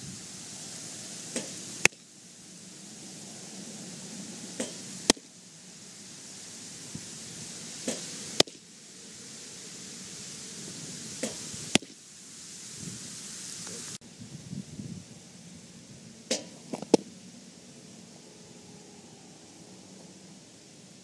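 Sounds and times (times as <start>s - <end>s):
whoosh of pitched ball: 1.3s - 2.0s, 7.8s - 8.6s
baseball smacking into mitt: 16.3s - 17.1s.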